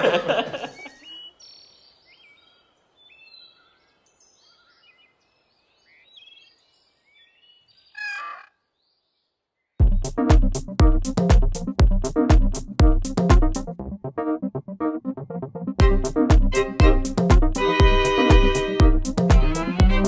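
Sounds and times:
faint bird chirps: 0.6 - 9.8
animal call: 7.9 - 8.7.

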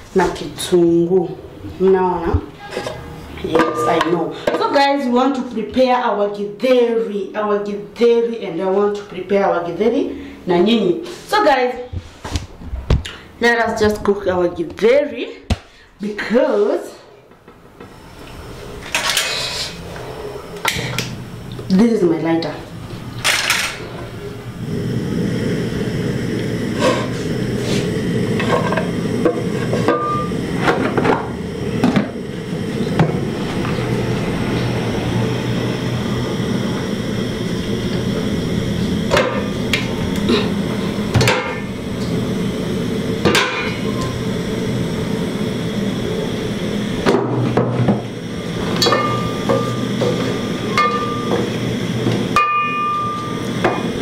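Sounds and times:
kitchen utensils clattering: 2.6 - 4.8, 18.8 - 19.8, 23.2 - 24.0, 41.1 - 41.7
lighter igniting gas burner: 17.8 - 21.8, 23.2 - 54.0
gas burner rushing: 17.8 - 54.0.

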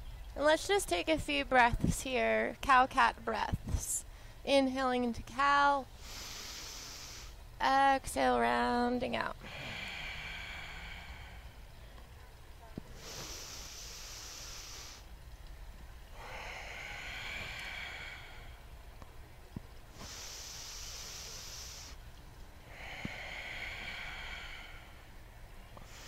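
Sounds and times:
person breathing slowly and deeply: 6.0 - 7.4, 9.4 - 11.9, 12.9 - 15.1, 16.1 - 18.8, 19.9 - 22.0, 22.6 - 26.0.

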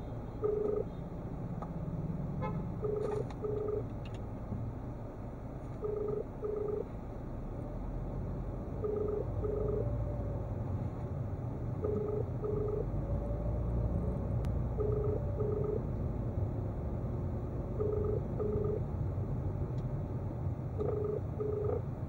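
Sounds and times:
slow car rumble: 0.0 - 22.0
telephone ringing tone: 0.4 - 1.0, 2.8 - 3.9, 5.8 - 6.9, 8.8 - 9.9, 11.8 - 12.9, 14.7 - 15.9, 17.7 - 18.9, 20.8 - 21.9.

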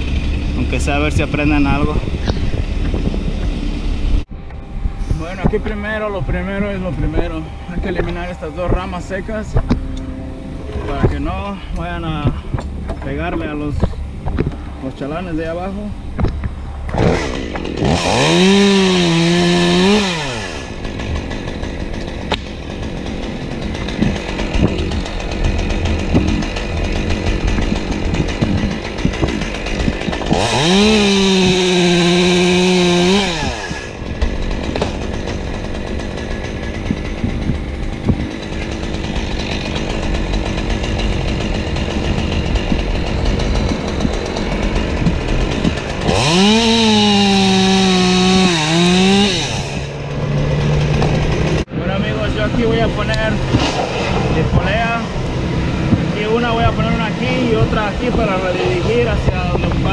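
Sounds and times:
chainsaw idling and revving: 0.0 - 4.2, 16.9 - 59.9.

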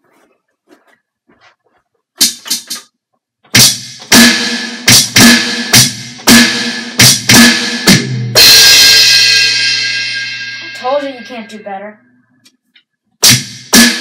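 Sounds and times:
electronic drum hits: 3.6 - 11.4
crash cymbal ringing: 8.4 - 11.6.

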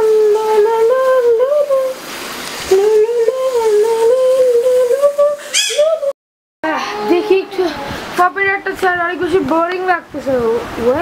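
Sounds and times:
person humming: 2.7 - 8.2.

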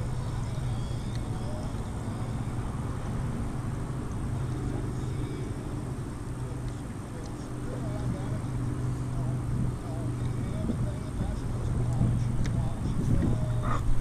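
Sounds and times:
small boat motor droning: 0.0 - 14.0.

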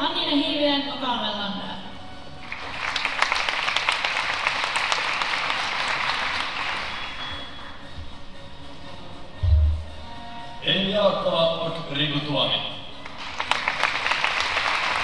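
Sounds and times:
audience applauding: 2.4 - 7.8, 13.0 - 15.0.

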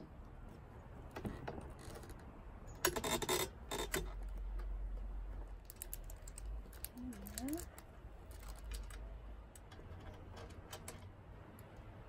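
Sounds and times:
metal parts clicking and rattling: 5.6 - 11.7.

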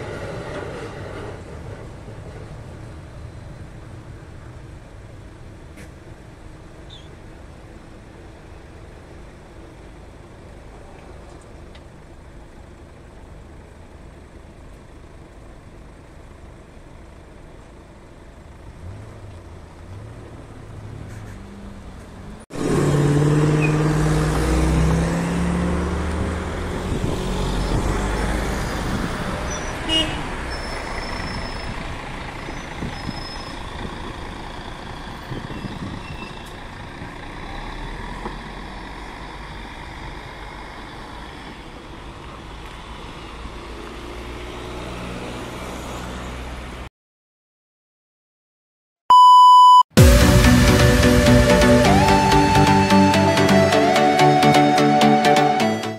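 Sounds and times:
faint idling engines: 0.0 - 22.4
bus diesel engine pulling past: 0.0 - 46.9, 50.0 - 55.9
road traffic: 0.0 - 46.9, 49.1 - 55.9.

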